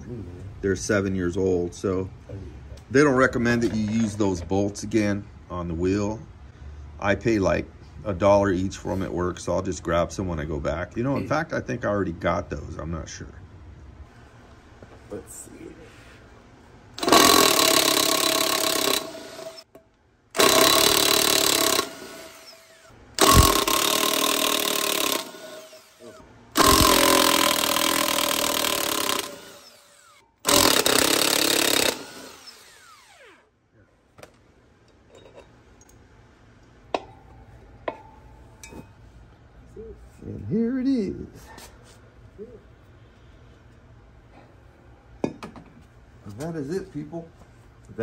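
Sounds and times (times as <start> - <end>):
impact wrench bursts: 17.0 - 19.7, 20.4 - 33.5.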